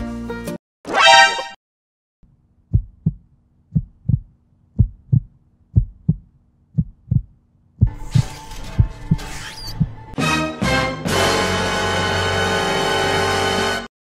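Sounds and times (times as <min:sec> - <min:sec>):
short shrill burst: 0:00.9 - 0:01.6
heartbeat thumps: 0:02.7 - 0:08.0.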